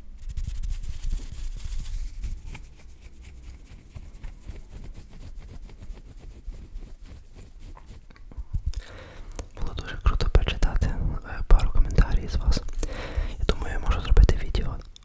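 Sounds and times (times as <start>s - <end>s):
fingers fluttering near microphone: 0.2s - 8.8s.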